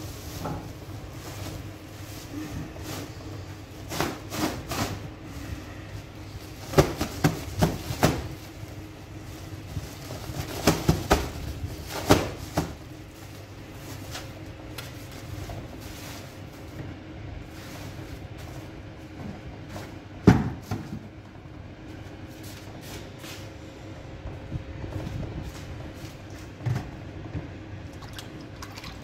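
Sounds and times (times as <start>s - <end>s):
low steady hum: 0.0s - 29.0s
flour sack thumping and flapping: 6.6s - 8.7s, 9.4s - 14.4s.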